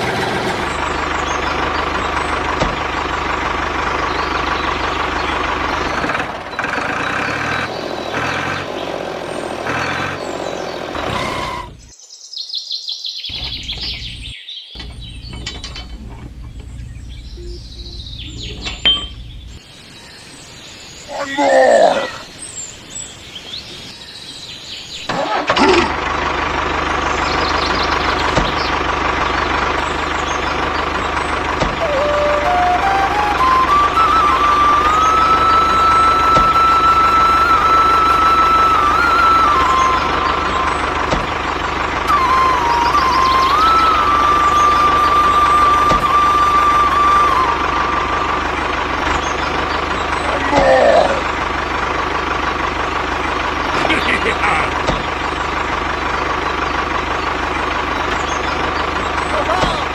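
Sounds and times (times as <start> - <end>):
tractor engine chugging: 0.0 - 11.9, 13.3 - 21.0, 24.6 - 59.9
birds chirping: 0.0 - 25.2, 26.2 - 59.9.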